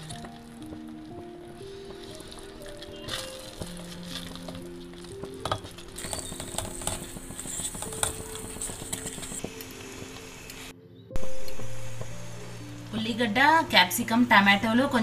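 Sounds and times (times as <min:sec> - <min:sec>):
spatula scraping and mashing in pot: 0:00.0 - 0:09.6
faint sizzle: 0:00.0 - 0:15.0.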